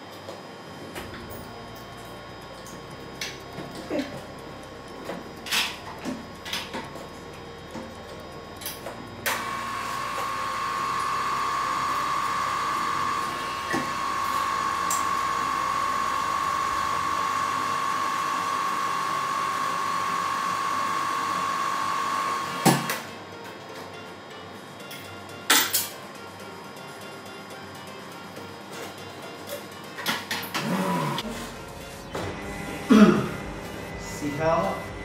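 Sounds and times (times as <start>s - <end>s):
drill press whining: 8.6s - 23.1s, 30.4s - 35.0s.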